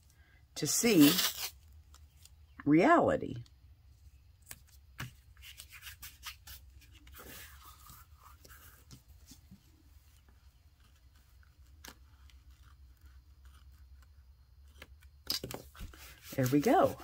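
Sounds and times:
hands rubbing tape on cardboard: 0.9 - 1.5, 5.0 - 9.6, 15.8 - 17.0.

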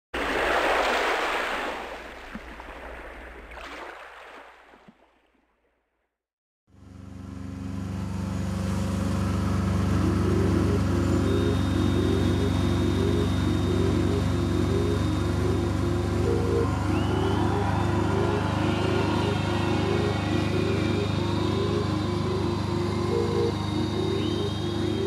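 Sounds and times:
low drone background music: 7.2 - 25.0
loud wash of noise: 15.5 - 23.1.

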